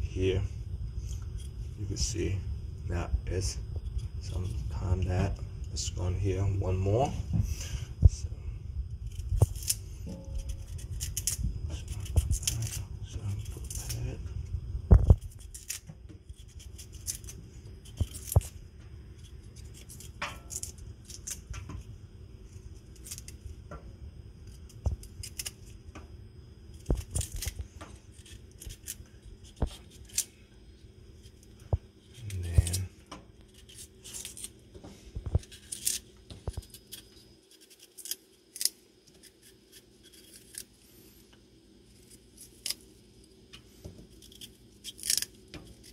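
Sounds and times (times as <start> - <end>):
knife scraping vegetable skin: 9.0 - 14.1, 15.1 - 18.5, 19.2 - 21.4, 25.0 - 25.7, 26.8 - 30.3, 33.5 - 34.6, 35.4 - 40.8, 44.1 - 45.9.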